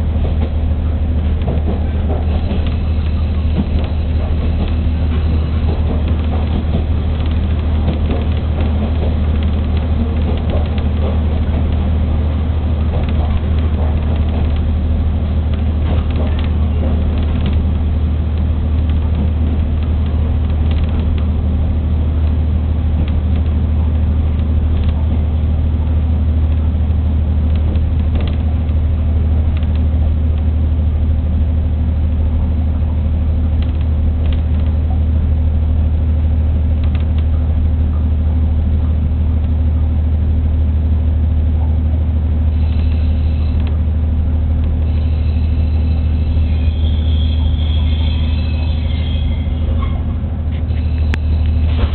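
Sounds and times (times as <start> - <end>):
wheels clicking on rails: 0.0 - 30.5, 33.4 - 35.1, 42.5 - 51.9
railcar diesel drone: 0.0 - 51.9.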